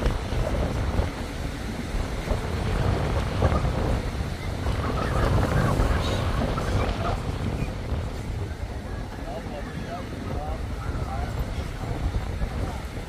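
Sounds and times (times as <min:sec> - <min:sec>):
surf on a beach: 0:00.0 - 0:13.0
wind buffeting microphone: 0:00.0 - 0:13.0
gulls calling: 0:03.5 - 0:11.1.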